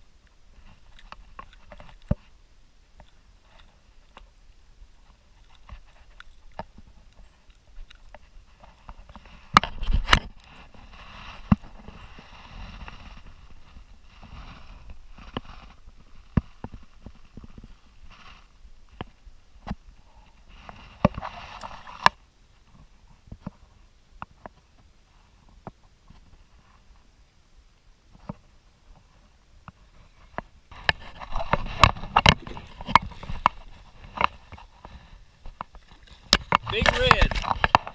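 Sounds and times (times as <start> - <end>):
fish thrashing thumps: 30.8 - 34.4.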